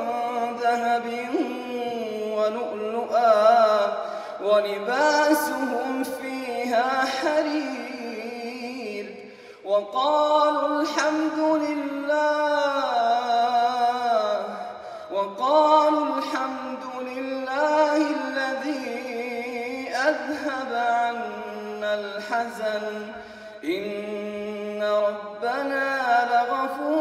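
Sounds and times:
man reciting melodically: 0.0 - 27.0.

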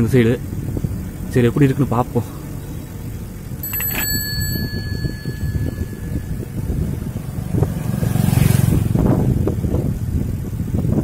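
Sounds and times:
low road rumble: 0.0 - 11.0
wind buffeting microphone: 3.0 - 11.0
bicycle bell ringing: 3.5 - 7.5.

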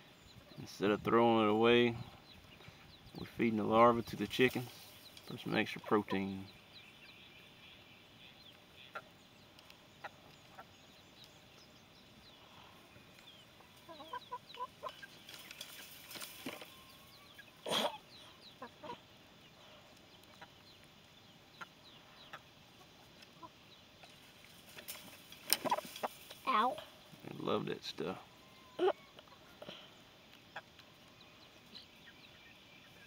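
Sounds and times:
hens clucking: 8.0 - 33.0.

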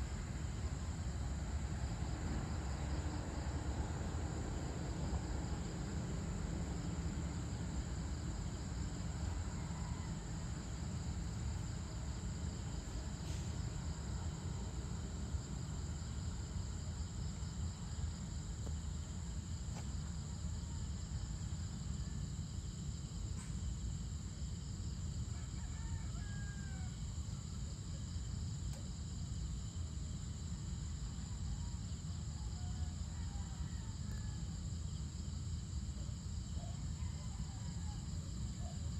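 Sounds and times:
high-pitched insect chorus: 0.0 - 38.9
faint rooster crowing: 8.4 - 12.0, 20.3 - 22.7, 25.1 - 27.6, 31.2 - 35.1, 35.9 - 38.9.

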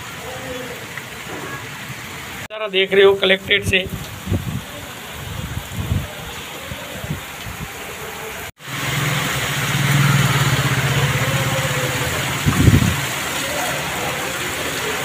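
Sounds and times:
heavy rain hissing: 0.0 - 15.0
vehicle engine running: 8.6 - 13.3.

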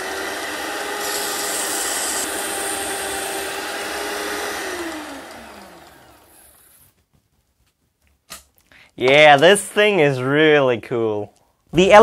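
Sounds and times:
belt sander motor whining: 0.0 - 6.8.

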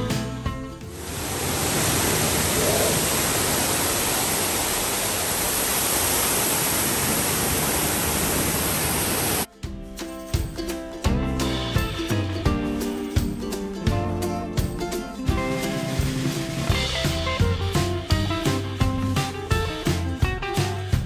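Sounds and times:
waterfall pouring into pool: 0.9 - 9.5.

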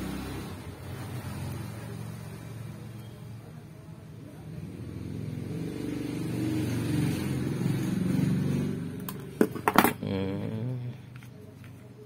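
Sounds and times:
vehicle engine passing by: 0.0 - 3.5, 4.1 - 9.4.

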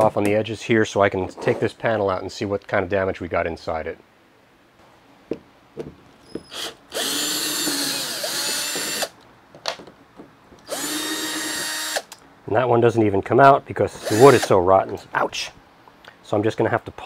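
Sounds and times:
cordless drill whining: 6.3 - 9.2, 10.6 - 12.2, 14.0 - 14.5.

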